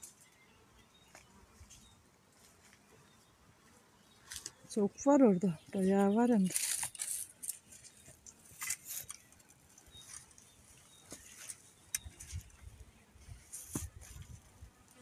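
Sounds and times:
bees buzzing faintly: 0.0 - 15.0
rustling in dry grass: 5.8 - 14.9
soft knocks in soil: 13.3 - 14.4.

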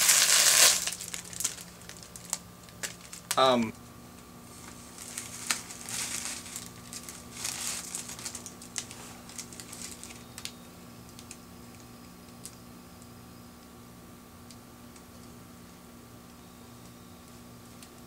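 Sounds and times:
plastic sheeting crinkling: 0.0 - 3.4, 4.5 - 10.5.

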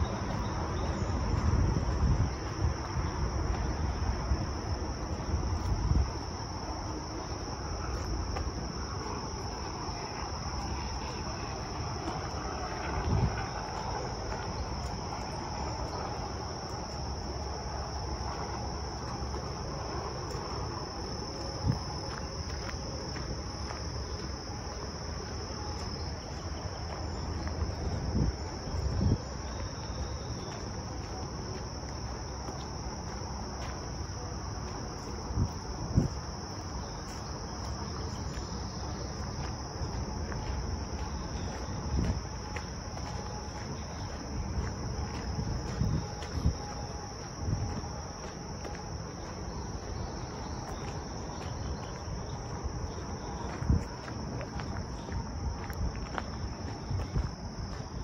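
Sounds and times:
high-pitched insect chorus: 0.0 - 58.0.

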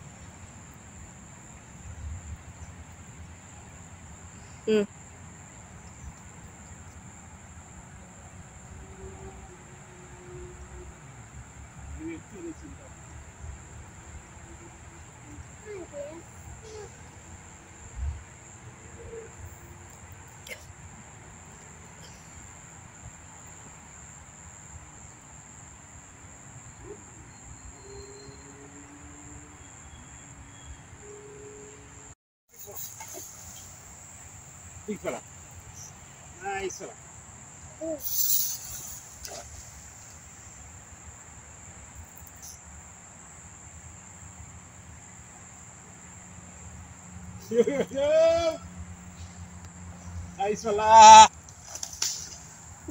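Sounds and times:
insects droning: 0.0 - 52.9
high-pitched insect drone: 21.3 - 44.5.

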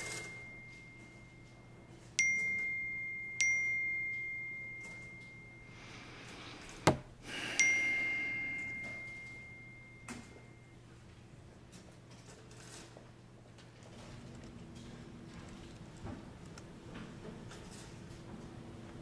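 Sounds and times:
bell-like dings: 0.0 - 6.0, 7.5 - 10.8.

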